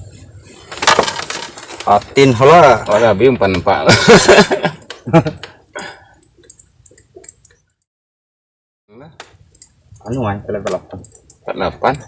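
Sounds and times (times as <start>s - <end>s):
man speaking: 1.8s - 4.0s, 10.0s - 12.0s.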